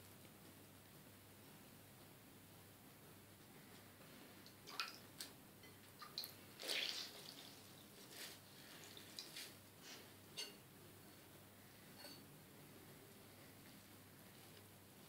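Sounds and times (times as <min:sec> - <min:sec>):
water splashing and dripping: 0:04.5 - 0:05.3, 0:06.0 - 0:07.5, 0:08.8 - 0:09.4.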